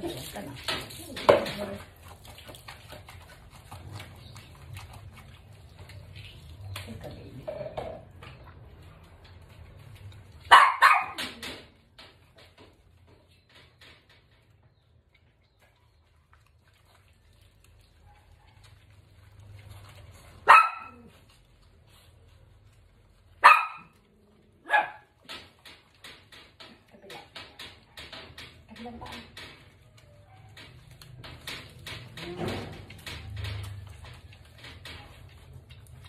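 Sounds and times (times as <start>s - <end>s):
dog barking: 10.5s - 11.2s, 20.4s - 21.1s, 23.4s - 24.0s, 24.6s - 25.1s.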